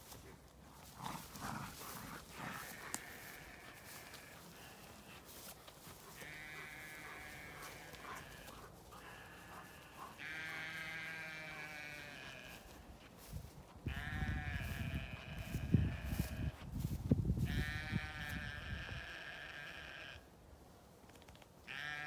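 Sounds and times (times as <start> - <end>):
sheep bleating: 2.3 - 5.2, 6.0 - 12.9, 13.9 - 16.6, 17.4 - 20.2, 21.7 - 22.0.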